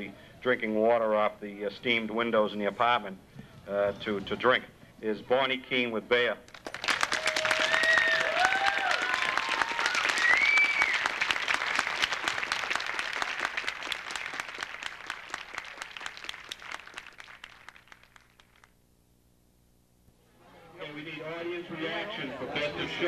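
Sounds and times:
crowd applauding: 0:06.5 - 0:18.7
people whooping and cheering: 0:07.0 - 0:11.4.

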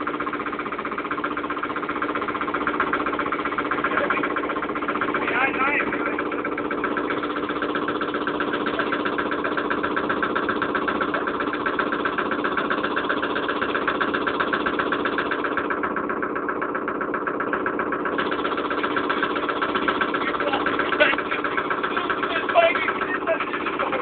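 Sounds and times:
vehicle engine running: 0:00.0 - 0:24.0.

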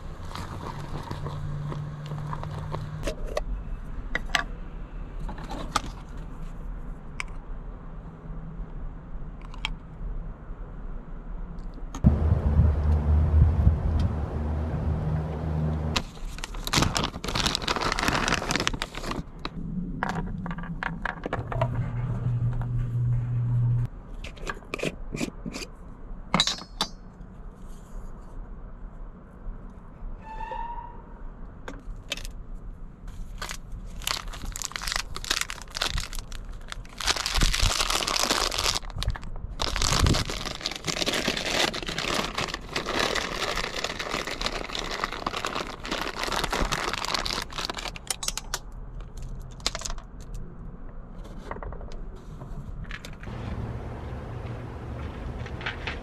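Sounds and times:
plastic pouch crinkling: 0:16.0 - 0:19.6, 0:33.3 - 0:48.2.

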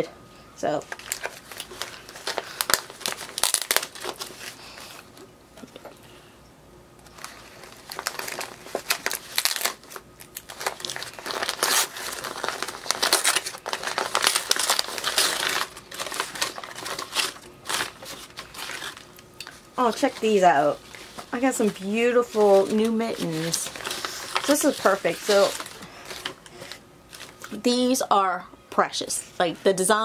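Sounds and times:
foil wrapping paper crinkling: 0:00.8 - 0:05.9, 0:07.0 - 0:28.0
tissue paper rustling: 0:00.9 - 0:05.1, 0:07.1 - 0:19.1, 0:19.8 - 0:27.5.

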